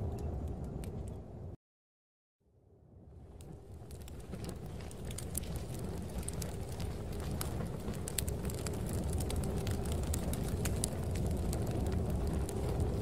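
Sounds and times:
snowstorm wind rumble: 0:02.9 - 0:13.0
fire crackling and popping: 0:03.2 - 0:13.0.

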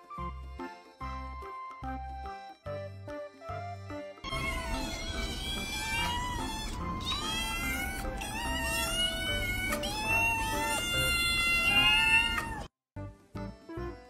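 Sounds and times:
background music: 0:00.0 - 0:14.0
kittens meowing: 0:04.3 - 0:12.7.

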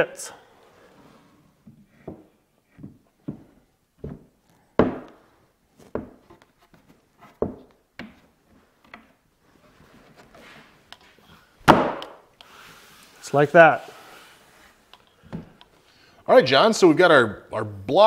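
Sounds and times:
wood rubbing slide: 0:12.4 - 0:14.8.

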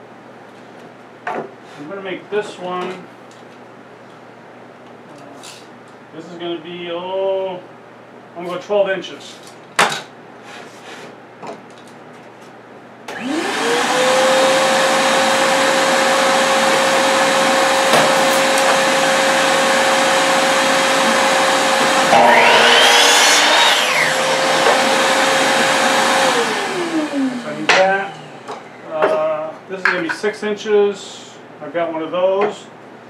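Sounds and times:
shop vacuum running: 0:13.1 - 0:29.5
miter saw motor running: 0:13.2 - 0:28.8
saw blade cutting wood: 0:17.8 - 0:18.9, 0:21.9 - 0:25.7.

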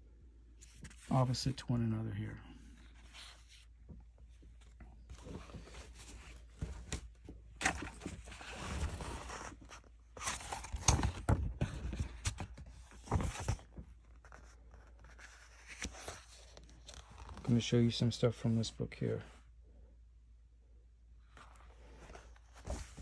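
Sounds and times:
book pages turning: 0:00.6 - 0:01.1, 0:04.6 - 0:17.5, 0:21.4 - 0:23.0.

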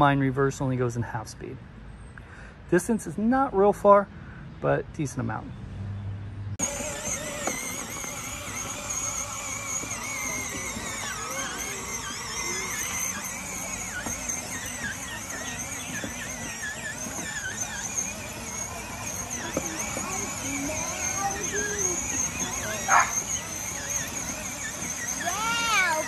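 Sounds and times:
electric toy truck motors whining: 0:06.6 - 0:26.0.

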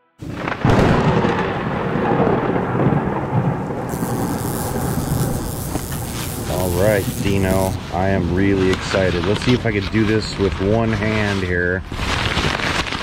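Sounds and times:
thunder crack and rumble: 0:00.2 - 0:05.1
rain-like hiss: 0:03.6 - 0:11.6.

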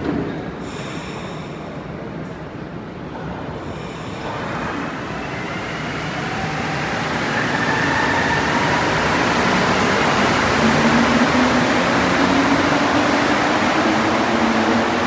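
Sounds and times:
train accelerating past: 0:04.0 - 0:15.0.

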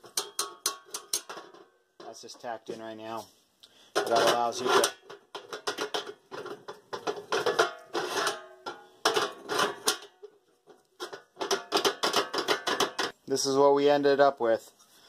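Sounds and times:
metal clinking and rattling: 0:00.0 - 0:02.3, 0:04.0 - 0:13.2.

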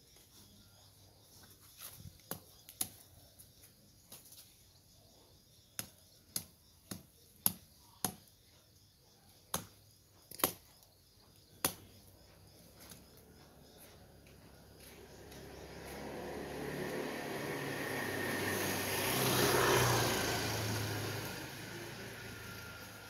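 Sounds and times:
machete chopping undergrowth: 0:05.8 - 0:08.3, 0:09.5 - 0:10.8, 0:11.6 - 0:11.9.

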